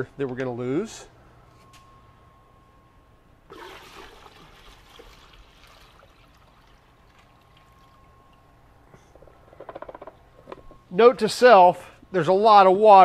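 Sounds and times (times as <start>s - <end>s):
water pouring into plastic bucket: 3.5s - 8.0s.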